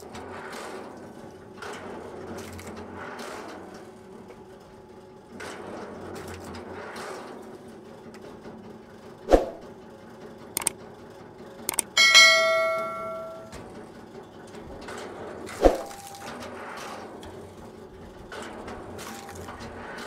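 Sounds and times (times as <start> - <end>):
mouse click: 11.7 - 12.0
notification bell ding: 11.7 - 13.6.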